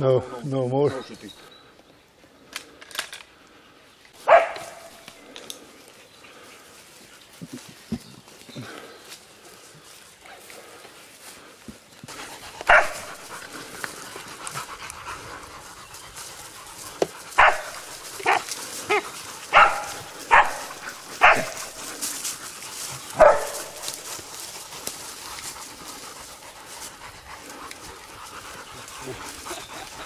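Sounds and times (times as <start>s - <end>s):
dogs barking: 4.2s - 5.1s, 12.1s - 30.0s.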